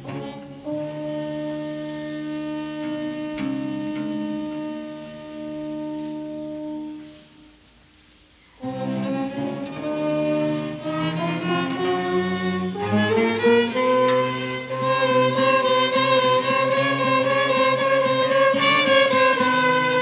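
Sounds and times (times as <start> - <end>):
bowed string ensemble chords: 8.6 - 20.0.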